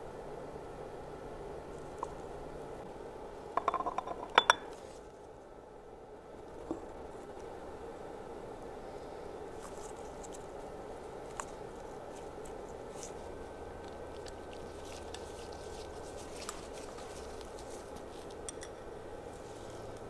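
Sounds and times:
steady background noise: 0.0 - 20.0
gloved hands clicking and rustling: 11.2 - 18.6.

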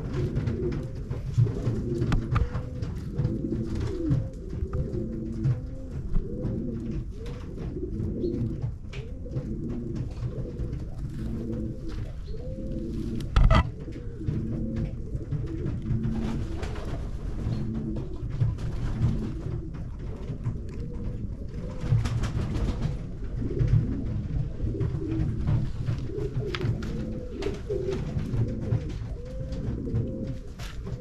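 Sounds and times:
pigeons cooing: 0.0 - 31.0.

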